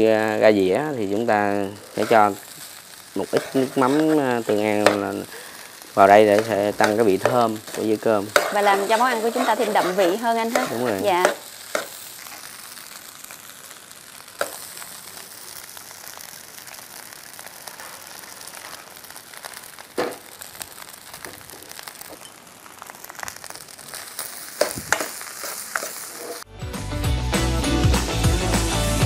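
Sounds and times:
rice sizzling in a frying pan: 0.0 - 26.5
music: 26.5 - 29.0.

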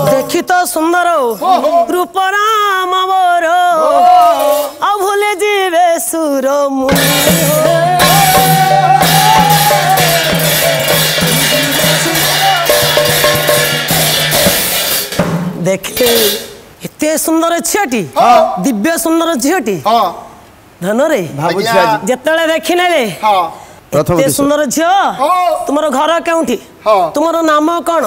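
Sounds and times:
drum: 0.0 - 0.5, 6.9 - 16.7
jingling percussion: 6.9 - 16.5.

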